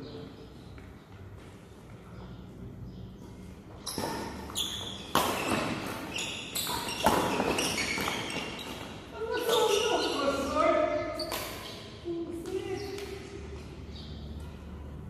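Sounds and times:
shoes squeaking on court floor: 3.1s - 14.3s
rackets hitting shuttlecock: 3.8s - 9.9s, 11.1s - 13.4s.

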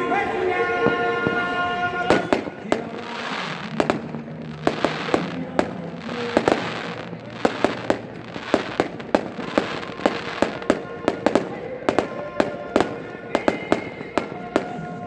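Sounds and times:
faint music: 0.0s - 15.0s
fireworks bangs: 0.6s - 15.0s
fireworks crackle: 0.7s - 15.0s.

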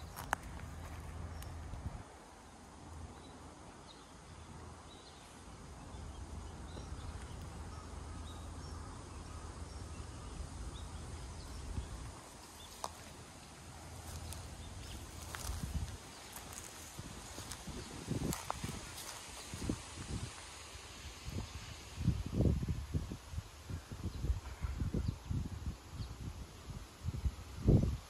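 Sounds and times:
faint hiss: 0.0s - 28.0s.

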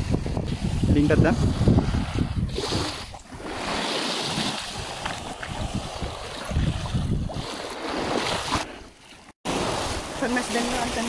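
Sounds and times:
wind buffeting microphone: 0.0s - 8.7s
surf washing on rocks: 9.5s - 11.0s.

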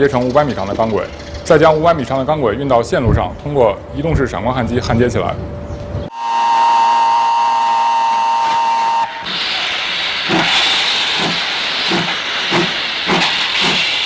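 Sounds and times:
steam locomotive whistle: 6.1s - 12.1s
steam hiss with rhythmic beat: 8.2s - 14.0s.

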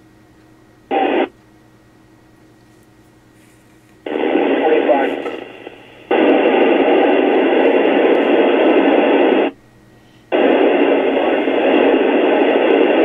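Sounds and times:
radio static hiss: 0.8s - 1.4s, 3.4s - 13.0s.

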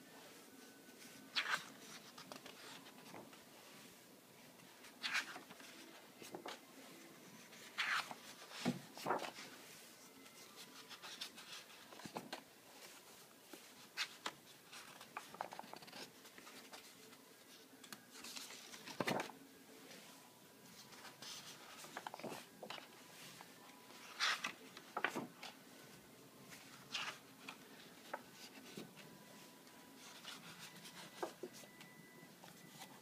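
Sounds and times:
sketchbook pages turning: 1.0s - 3.4s, 4.8s - 6.6s, 7.4s - 19.4s, 20.7s - 25.6s, 26.5s - 29.1s, 29.7s - 31.8s
paper rubbing and handling: 4.8s - 19.3s, 29.7s - 31.7s.

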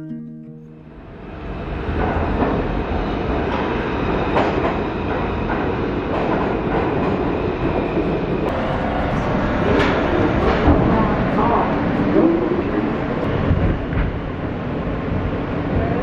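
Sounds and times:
subway train wheels rumbling: 0.9s - 16.0s
wheels clacking over rail joints: 1.8s - 8.6s.

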